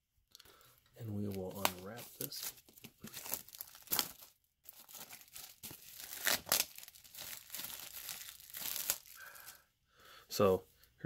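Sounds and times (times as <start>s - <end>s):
plastic shrink wrap crinkling: 1.0s - 9.6s.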